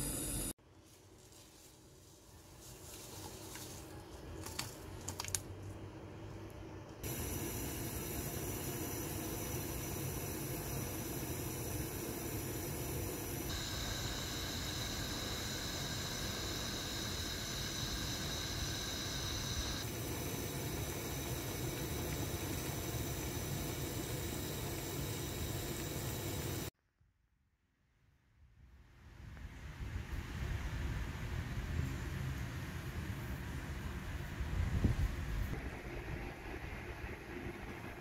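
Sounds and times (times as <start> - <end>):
gas burner hissing: 0.0 - 0.6, 7.0 - 26.7.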